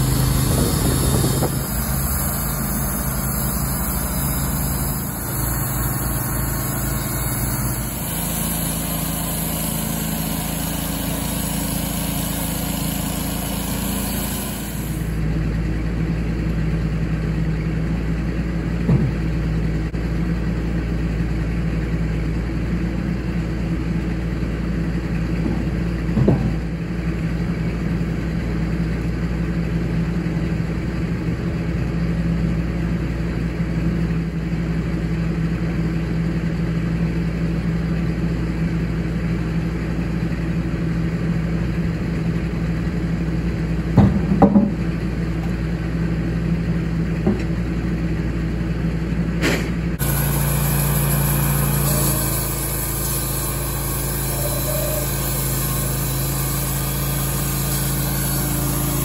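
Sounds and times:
band blade cutting wood: 0:00.0 - 0:15.2, 0:49.4 - 0:59.0
sawmill engine running: 0:00.0 - 0:59.0
sharp knocks: 0:44.0 - 0:44.8.

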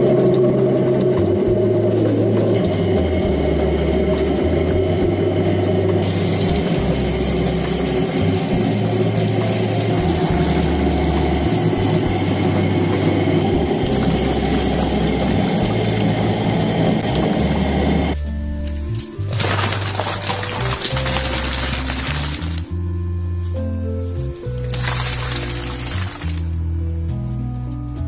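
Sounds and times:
background music with bass: 0:00.0 - 0:28.0
water pouring and splashing: 0:06.0 - 0:13.1, 0:13.8 - 0:17.5, 0:19.2 - 0:22.7, 0:24.4 - 0:26.6.

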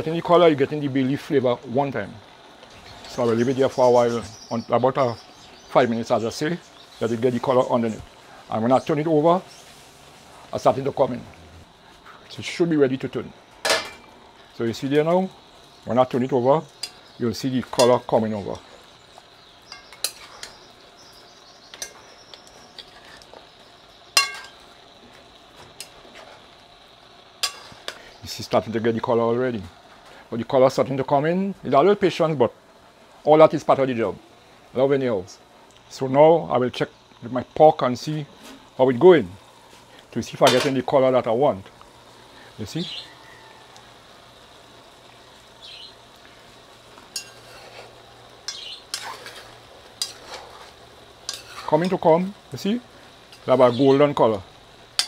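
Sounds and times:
meat sizzling: 0:00.0 - 0:55.0
metal spoon clinking against pot: 0:19.7 - 0:20.6, 0:24.2 - 0:24.6, 0:27.4 - 0:28.0, 0:47.1 - 0:47.6, 0:50.0 - 0:50.4, 0:51.3 - 0:52.0
metal spoon scraping a pot: 0:19.7 - 0:20.6, 0:22.7 - 0:23.4, 0:47.1 - 0:52.0.

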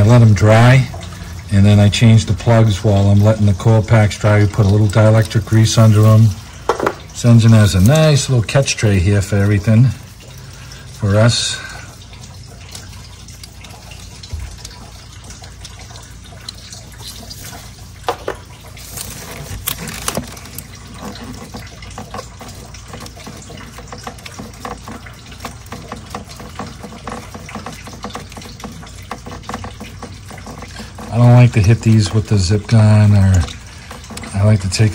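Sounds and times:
hand tools clicking and knocking: 0:06.7 - 0:07.1.

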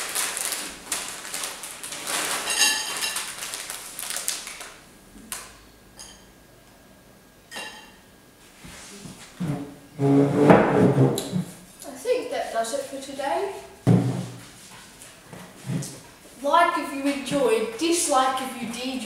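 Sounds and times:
plastic packet crinkling: 0:00.0 - 0:04.8.

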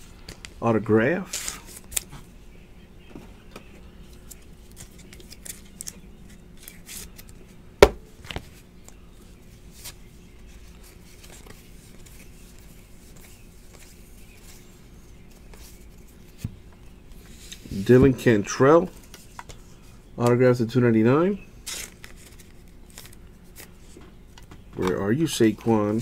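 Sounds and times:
cards clicking and rustling: 0:04.1 - 0:07.4, 0:21.6 - 0:25.0.

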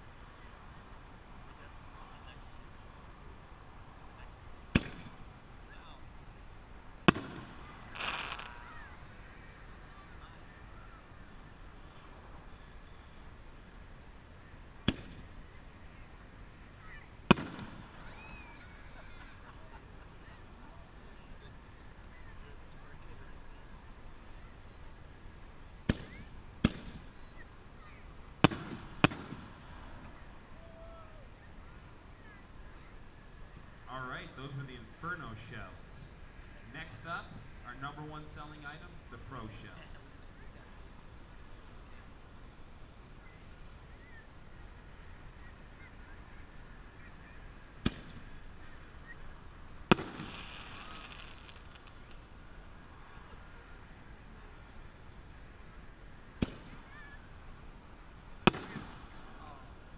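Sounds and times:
crackling hiss: 0:00.0 - 0:59.9
firework launch bang: 0:17.3 - 0:18.1, 0:49.9 - 0:52.1, 0:58.4 - 0:59.2.

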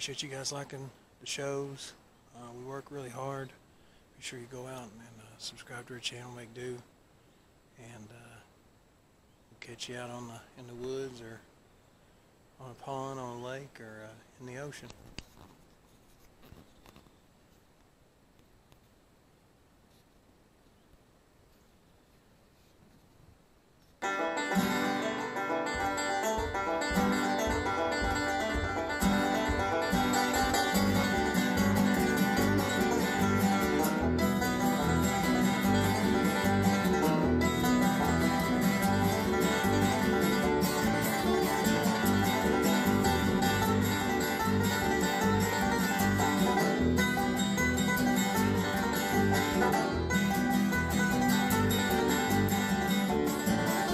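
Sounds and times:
upbeat bluegrass tune on plucked strings: 0:24.0 - 0:53.9.

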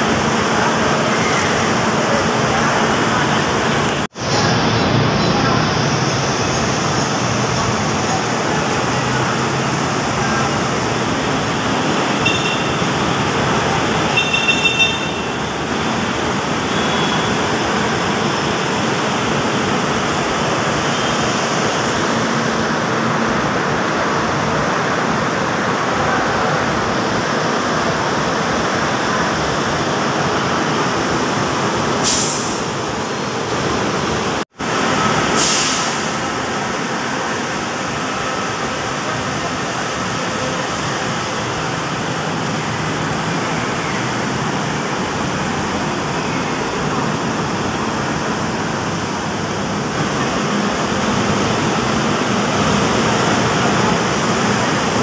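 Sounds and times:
people's voices: 0:00.0 - 0:34.0, 0:34.7 - 0:55.0
diesel buses idling: 0:00.0 - 0:55.0
pneumatic hisses from buses: 0:32.0 - 0:32.8, 0:35.3 - 0:36.2.

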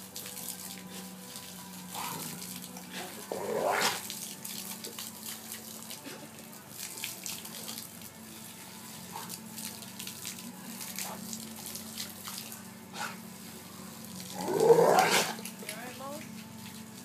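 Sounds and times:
water spraying from garden hose: 0:00.0 - 0:17.0
dog biting at water jet: 0:01.9 - 0:06.2, 0:09.1 - 0:13.2, 0:14.2 - 0:15.5.

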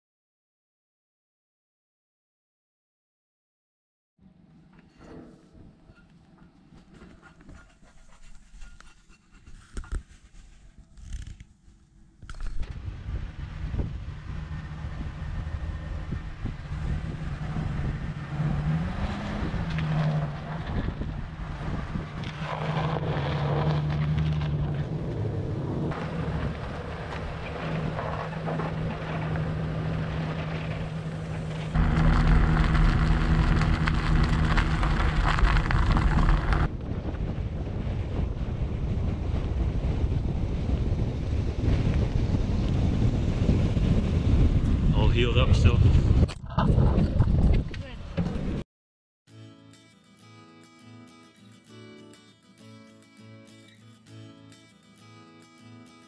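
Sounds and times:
tyre road noise: 0:04.3 - 0:48.6
wind buffeting microphone: 0:12.6 - 0:23.2, 0:24.5 - 0:48.6
truck engine humming: 0:12.8 - 0:36.7.

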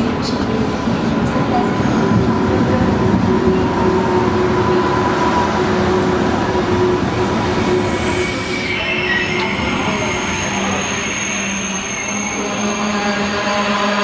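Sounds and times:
train wheels rumbling on rail: 0:00.0 - 0:14.0
high squealing tones: 0:07.0 - 0:13.3.

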